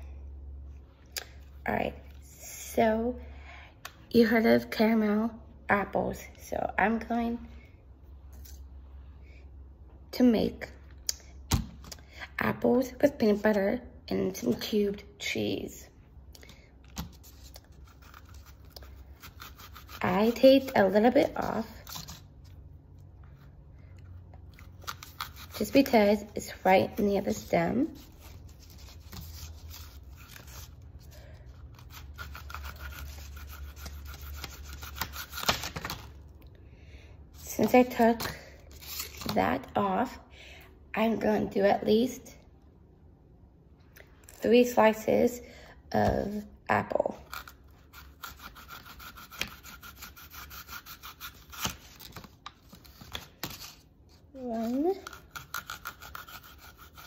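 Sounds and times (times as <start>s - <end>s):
low steady hum: 0.0s - 57.0s
knife cutting through apple: 16.5s - 22.6s, 24.5s - 36.2s, 47.1s - 57.0s.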